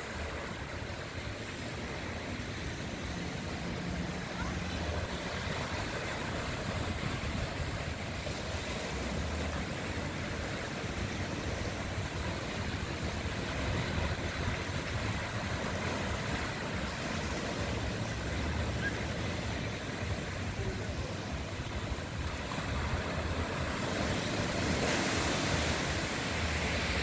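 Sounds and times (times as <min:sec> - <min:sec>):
waves washing up a beach: 0:00.0 - 0:27.0.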